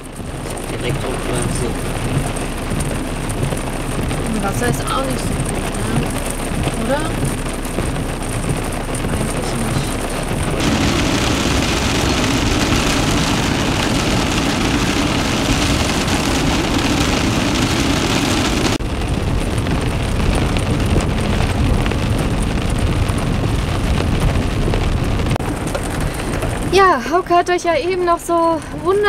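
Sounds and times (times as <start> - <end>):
diesel engine running: 0.0 - 29.0
rain on van windows: 0.0 - 29.0
tyres on gravel: 0.0 - 29.0
wind on van: 0.0 - 29.0.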